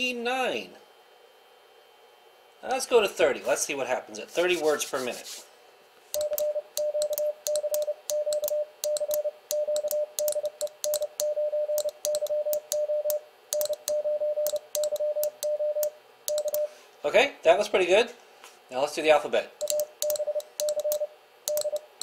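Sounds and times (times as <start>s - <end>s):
morse code beeps: 6.2s - 16.8s, 19.6s - 22.0s.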